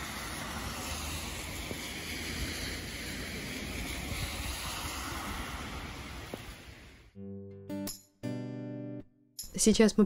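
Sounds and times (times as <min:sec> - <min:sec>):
tyres hissing on wet road: 0:00.0 - 0:07.1
wind rumbling on microphone: 0:00.0 - 0:07.1.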